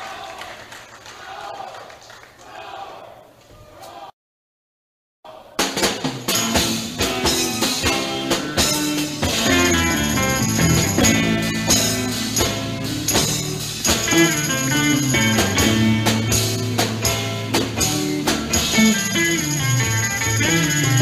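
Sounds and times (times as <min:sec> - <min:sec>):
drum kit beats: 0:05.6 - 0:21.0
electric guitar lines: 0:06.3 - 0:21.0
bass line: 0:06.4 - 0:21.0.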